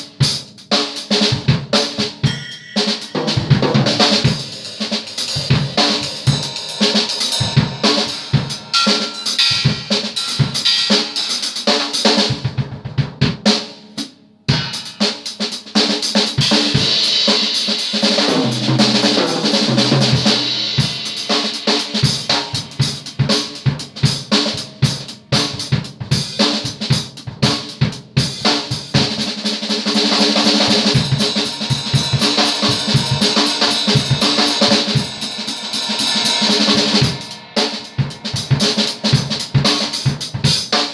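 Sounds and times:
drum kit played fast: 0.0 - 40.9
ringing cymbals: 2.2 - 12.0, 16.7 - 23.6, 30.2 - 40.9.

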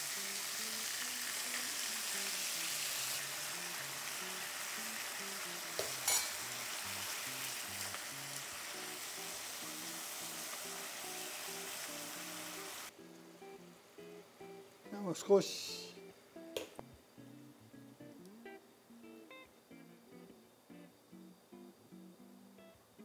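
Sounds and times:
meat sizzling in a frying pan: 0.0 - 12.9.

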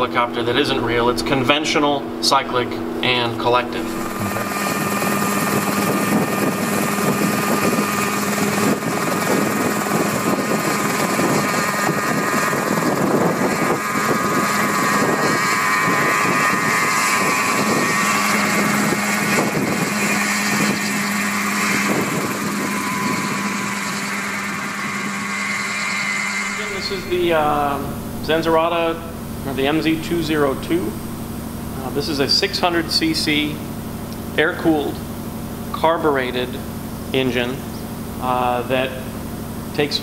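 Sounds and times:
helicopter engine and rotor: 3.8 - 28.5.

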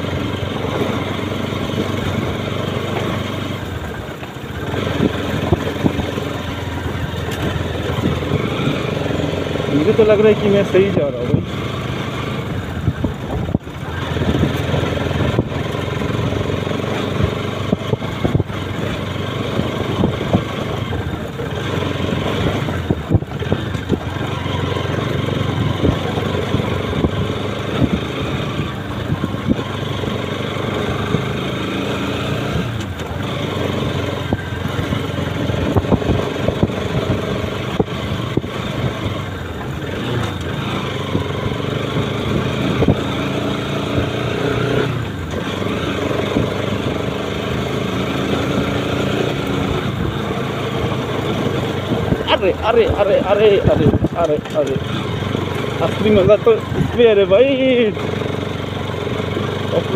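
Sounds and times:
motorcycle engine running: 0.0 - 59.9
knocks and rattles from bumps: 51.6 - 54.9.

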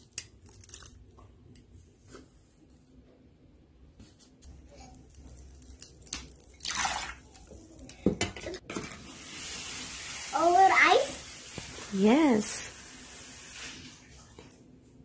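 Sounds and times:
water splashing onto ice: 6.0 - 7.4.

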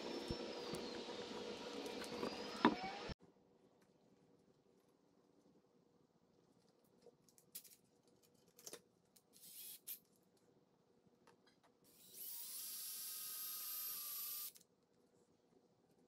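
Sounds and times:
cordless drill boring into wood: 0.0 - 3.2, 12.0 - 14.6.

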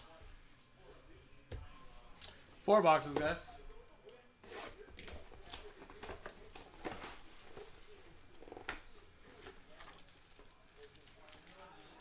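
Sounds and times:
cardboard and wrappers rustling: 4.4 - 12.0
sharp wrapper crackles: 9.9 - 12.0.

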